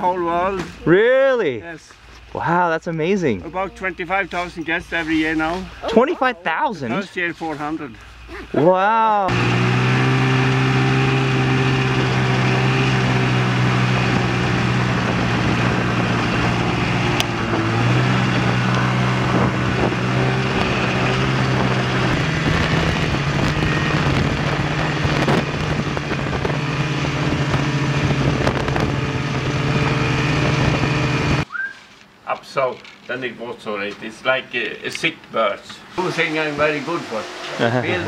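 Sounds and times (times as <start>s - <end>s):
snowmobile engine running: 9.3s - 31.4s.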